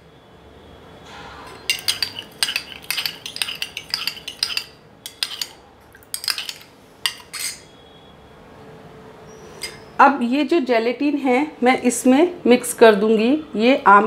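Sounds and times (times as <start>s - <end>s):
metal spoon clinking in a bowl: 1.5s - 7.7s, 9.6s - 9.8s.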